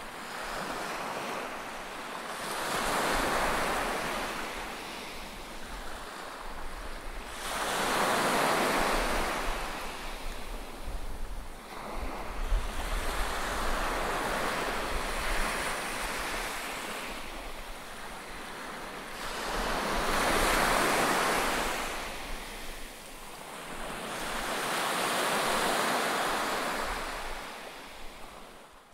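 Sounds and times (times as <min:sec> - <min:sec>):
surf breaking on a beach: 0:00.0 - 0:28.6
wind buffeting the microphone: 0:02.7 - 0:18.2.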